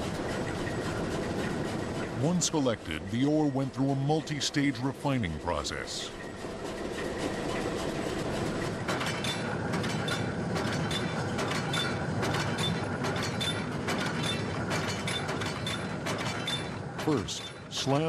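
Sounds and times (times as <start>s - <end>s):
machinery clattering: 0.0s - 18.0s.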